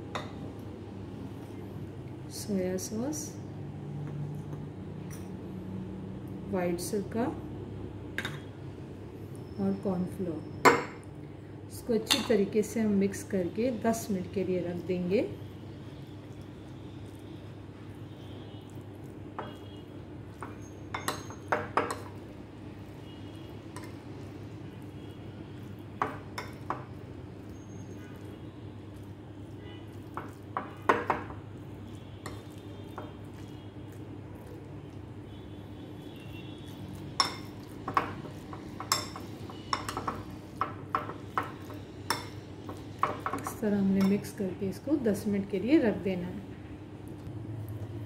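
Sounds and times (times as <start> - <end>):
metal spoon clinking glass bowl: 5.0 - 5.4, 12.1 - 12.4, 20.3 - 22.1, 37.2 - 44.3.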